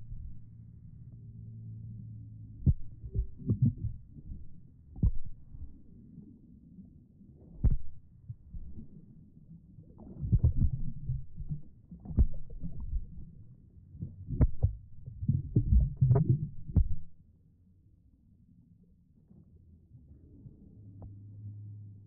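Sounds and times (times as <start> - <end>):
muffled pool water splashing: 0.0 - 17.4.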